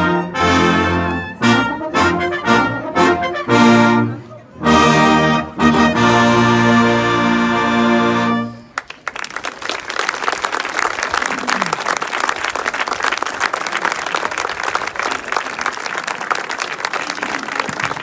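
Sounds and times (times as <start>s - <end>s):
brass band chord: 0.0s - 8.6s
audience applause: 8.8s - 18.0s.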